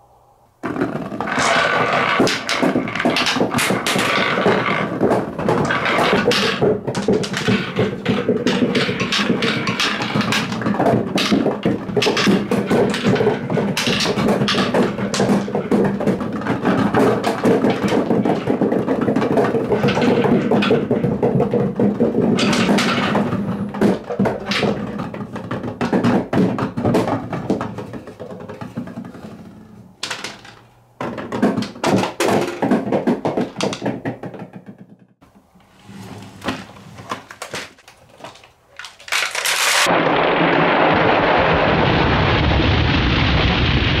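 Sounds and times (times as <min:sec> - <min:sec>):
balls clattering down wooden ramps: 0:00.5 - 0:43.2
marbles rushing out of plastic bed: 0:00.6 - 0:29.4, 0:38.8 - 0:44.0.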